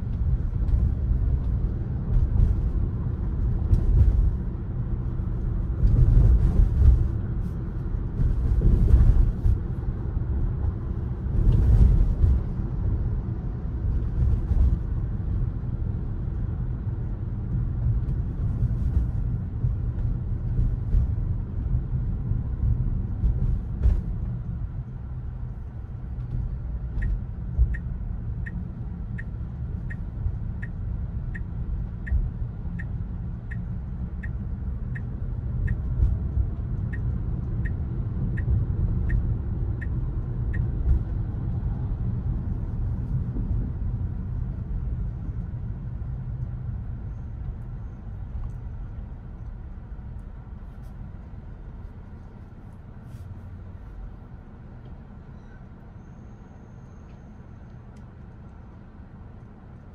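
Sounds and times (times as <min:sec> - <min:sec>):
road and tyre rumble: 0:00.0 - 0:59.9
turn signal ticking: 0:26.0 - 0:42.5.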